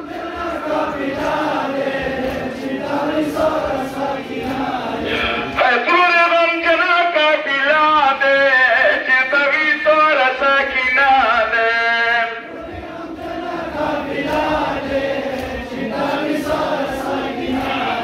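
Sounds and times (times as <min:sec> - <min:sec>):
crowd of men chanting: 0:00.0 - 0:07.7, 0:12.1 - 0:18.0
man chanting over loudspeakers: 0:05.0 - 0:12.5, 0:17.1 - 0:18.0.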